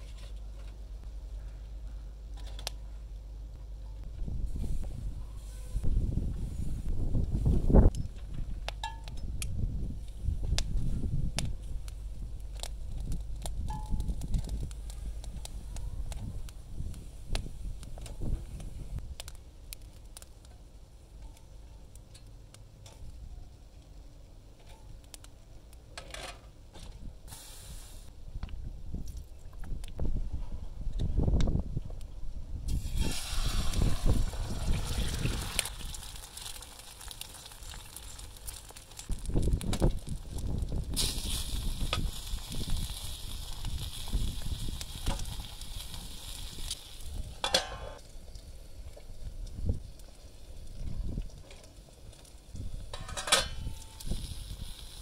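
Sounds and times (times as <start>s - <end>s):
charcoal crackling: 2.3s - 3.3s, 4.3s - 26.0s, 31.1s - 55.0s
brief hiss: 27.3s - 28.1s
eggs sizzling in oil: 32.7s - 47.4s, 53.6s - 55.0s.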